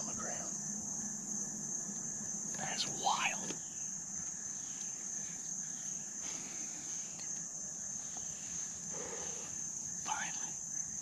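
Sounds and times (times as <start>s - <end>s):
crickets chirping: 0.0s - 11.0s
faint breathy sound: 8.3s - 10.6s.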